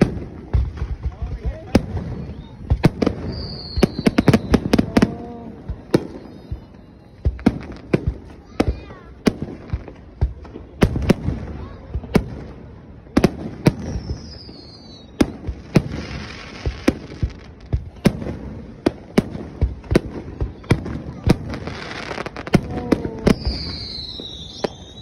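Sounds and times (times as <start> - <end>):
firework hiss: 0.0 - 25.0
fireworks booming: 0.0 - 25.0
falling firework whistle: 1.9 - 7.6, 13.6 - 18.1, 20.4 - 25.0.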